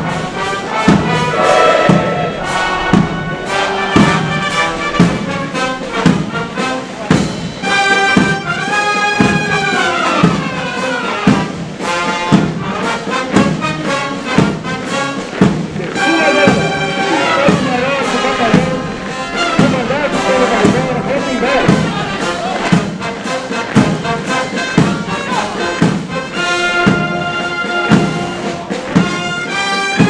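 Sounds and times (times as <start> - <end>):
brass band playing a march: 0.0 - 30.0
bass drum beat: 15.3 - 25.2.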